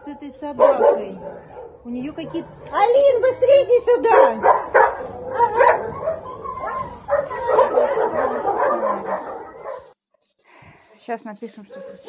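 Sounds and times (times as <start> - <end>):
dog whimpering and yelping: 4.8 - 9.9.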